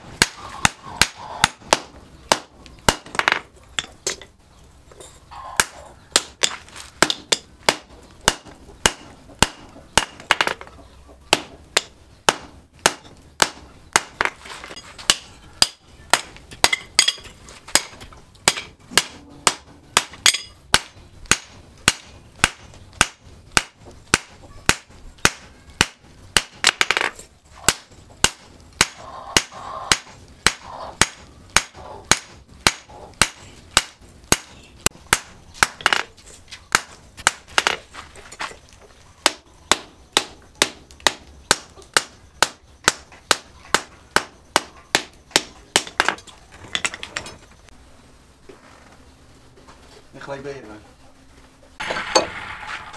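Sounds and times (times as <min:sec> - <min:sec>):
hammer striking metal on anvil: 0:17.8 - 0:27.0.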